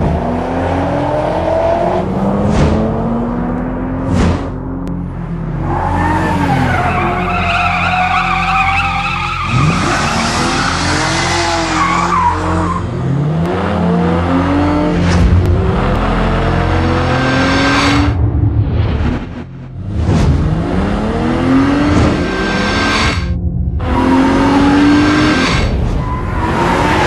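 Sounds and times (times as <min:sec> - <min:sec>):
car engine revving: 0:00.0 - 0:27.0
tyres squealing: 0:05.8 - 0:12.8.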